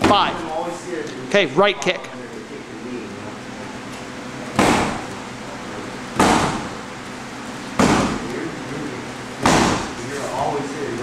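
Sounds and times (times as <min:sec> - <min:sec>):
kicks hitting heavy bag: 0:00.0 - 0:00.4, 0:06.2 - 0:06.8, 0:07.8 - 0:08.2, 0:09.4 - 0:10.0.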